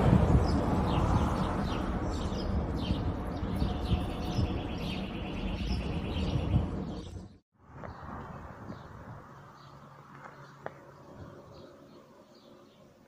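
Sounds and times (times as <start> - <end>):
small birds chirping: 0.4 - 8.0.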